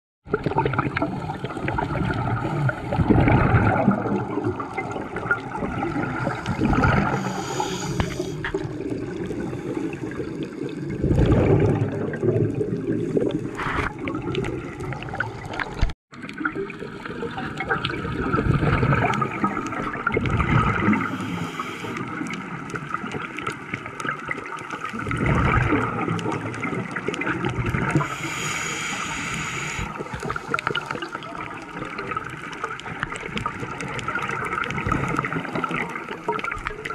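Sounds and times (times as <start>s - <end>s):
exhaled bubbles underwater: 0.2s - 36.9s
underwater hum: 0.2s - 36.9s
high hiss: 7.2s - 8.4s, 21.0s - 22.0s, 28.1s - 29.9s.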